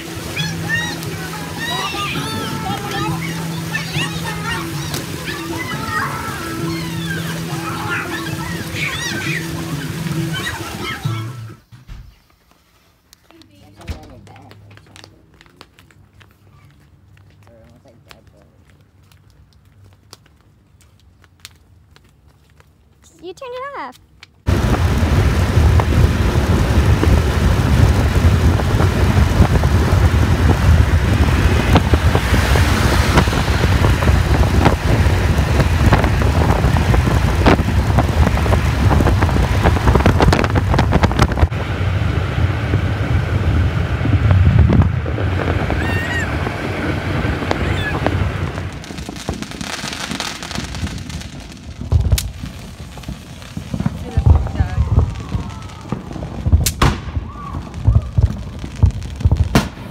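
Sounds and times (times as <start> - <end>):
car road noise: 0.0 - 11.7, 24.5 - 56.6
wind rushing on microphone: 24.5 - 59.9.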